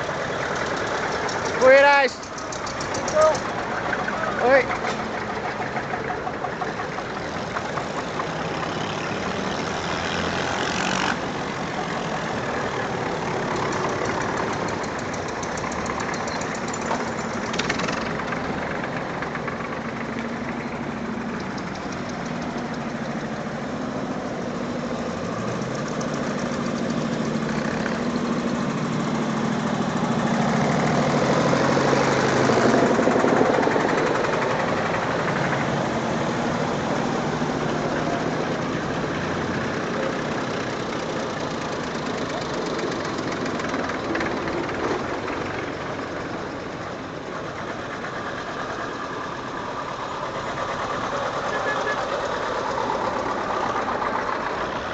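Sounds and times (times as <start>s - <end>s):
old tractor engine running: 0.0s - 54.9s.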